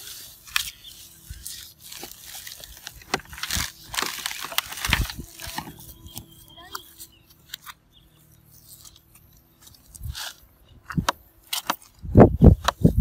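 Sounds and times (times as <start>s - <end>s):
covering ripping and scraping: 0.0s - 7.8s, 8.4s - 10.6s.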